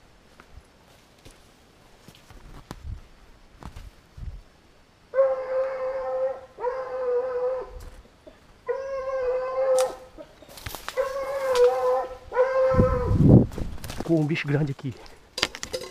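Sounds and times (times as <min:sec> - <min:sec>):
dog baying howls: 0:05.1 - 0:07.8, 0:08.7 - 0:10.1, 0:11.0 - 0:13.2.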